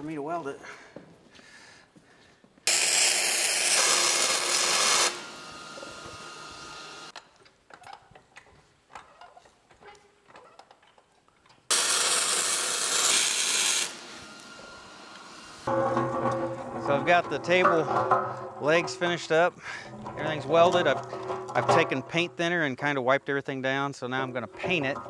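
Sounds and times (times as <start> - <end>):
arc welding crackling hiss: 2.7 - 7.2, 11.7 - 15.7.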